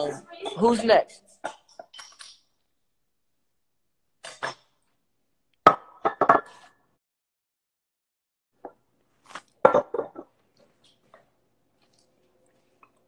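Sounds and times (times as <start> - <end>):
glass bottle clinking: 1.5 - 2.5, 9.6 - 10.3.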